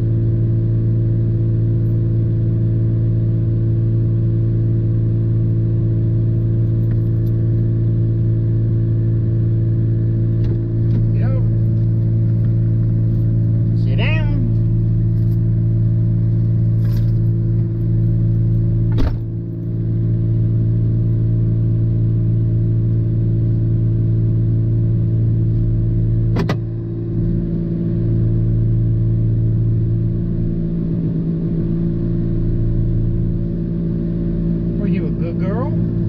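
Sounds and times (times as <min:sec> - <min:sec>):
truck engine idling: 0:09.3 - 0:20.7.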